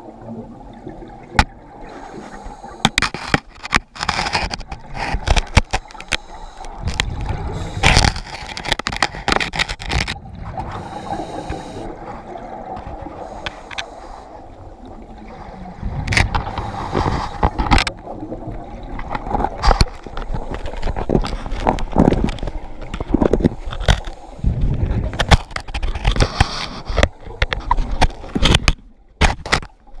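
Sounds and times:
underwater water noise: 0.0 - 30.0
octopus knocking and scraping on case: 6.8 - 10.2, 16.1 - 17.9, 19.1 - 29.7.

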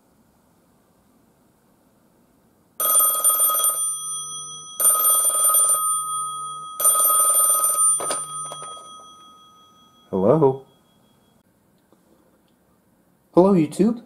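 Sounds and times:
telephone bell ringing: 2.8 - 11.4.

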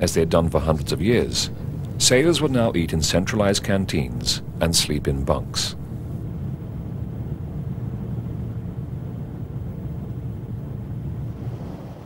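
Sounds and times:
faint steady hum: 0.0 - 12.0
ship machinery rumble: 0.0 - 12.0.

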